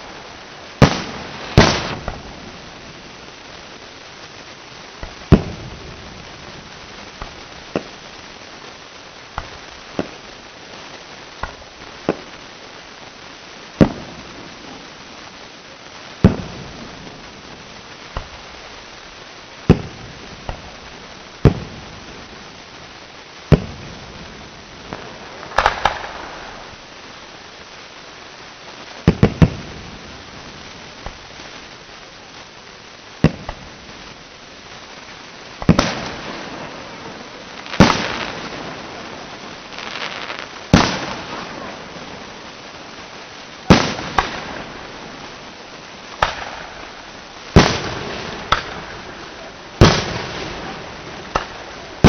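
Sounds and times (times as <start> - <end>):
firework crackling: 0.0 - 52.0
firework shells bursting: 0.7 - 3.0, 4.9 - 8.5, 9.3 - 10.3, 11.3 - 12.4, 24.9 - 26.8, 33.2 - 34.1, 35.5 - 42.2, 43.6 - 52.0.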